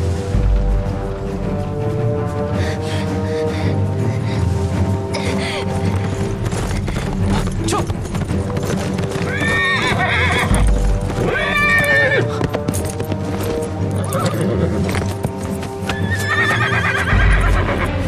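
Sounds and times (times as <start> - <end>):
background music: 0.0 - 18.0
horse hooves clip-clopping: 5.1 - 18.0
horse whinnying: 9.2 - 12.4, 13.9 - 15.2, 15.8 - 17.9.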